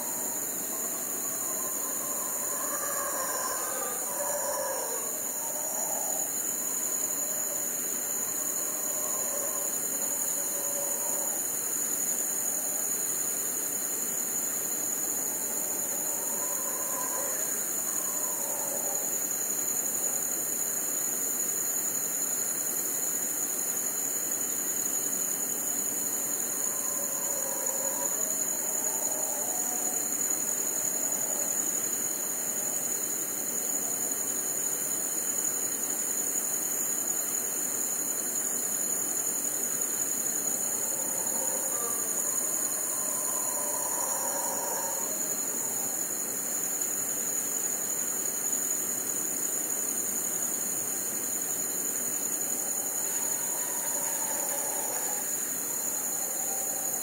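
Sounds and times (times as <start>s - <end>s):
distant howler monkeys roaring: 0.0s - 11.6s, 15.0s - 19.2s, 26.0s - 31.8s, 39.9s - 46.1s, 52.5s - 57.0s
crickets chirping: 0.0s - 57.0s.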